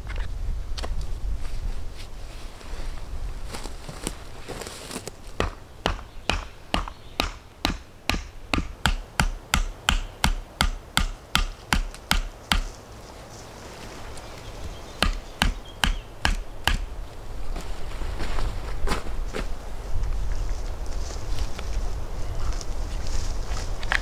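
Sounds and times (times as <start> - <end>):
hammer driving tent peg: 5.4 - 12.7, 15.0 - 16.9.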